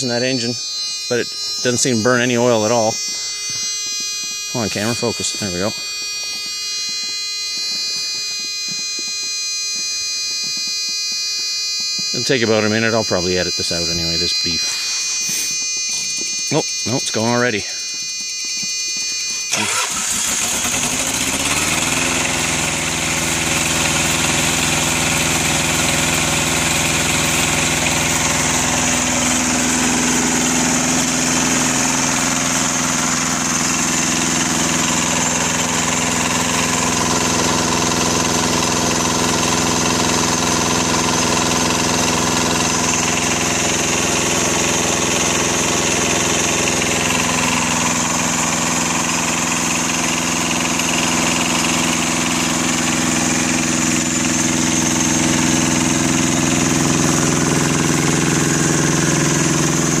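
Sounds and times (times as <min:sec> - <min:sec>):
diesel engine running: 0:19.5 - 1:00.0.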